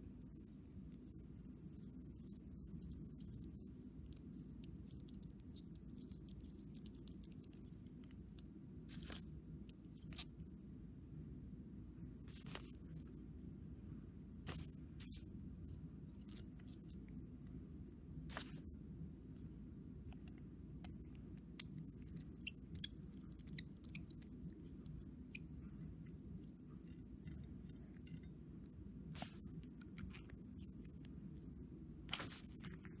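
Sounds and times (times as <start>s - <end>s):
low steady hum: 0.0s - 33.0s
metal pen parts clicking: 4.6s - 8.2s, 20.8s - 24.3s.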